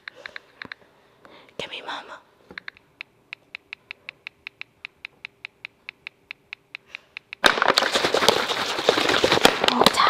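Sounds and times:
phone keyboard clicks: 2.5 - 7.4
loud crackling noise: 7.4 - 10.0.

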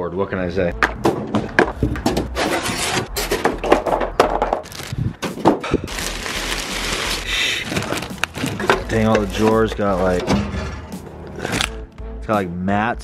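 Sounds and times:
packaging crackling and rustling: 4.4 - 10.2.

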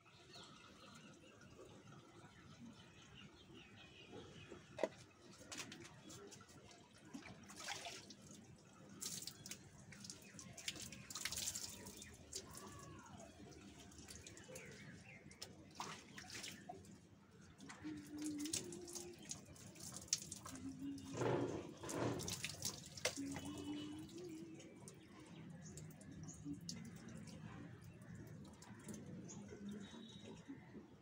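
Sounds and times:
water splashing on concrete floor: 4.8 - 25.0.

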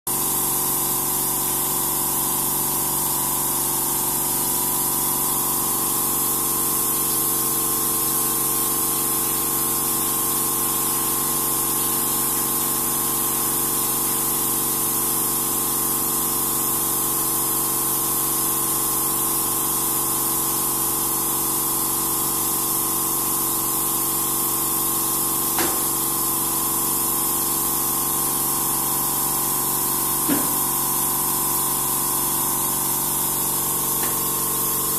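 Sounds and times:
hissing spray: 4.8 - 17.2, 22.2 - 34.9.

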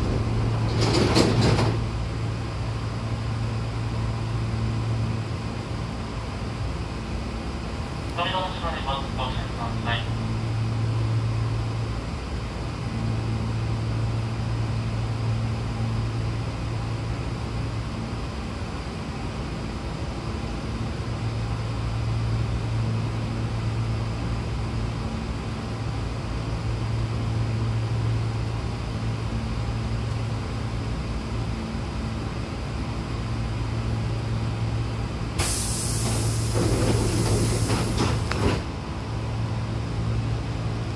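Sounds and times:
train doors knocking shut: 0.0 - 2.0, 35.4 - 38.8
train humming: 0.0 - 40.9
compressed air hiss: 35.4 - 38.2.

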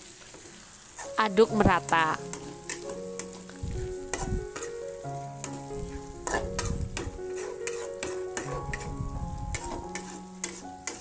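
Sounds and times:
paste sizzling in oil: 0.0 - 11.0
metal spatula scraping a pan: 2.2 - 11.0.

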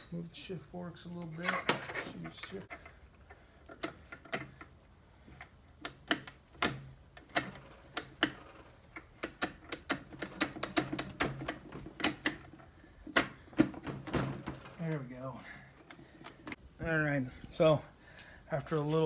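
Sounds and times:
metallic clicks and knocks: 1.1 - 15.0.

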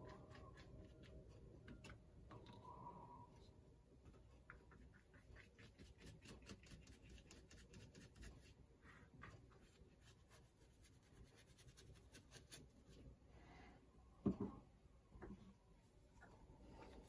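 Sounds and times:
paintbrush scratching on paper: 4.8 - 13.0.

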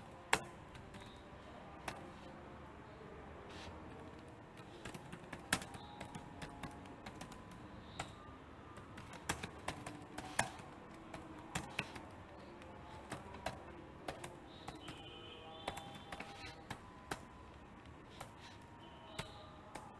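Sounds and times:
keyboard typing clicks: 4.1 - 19.9.

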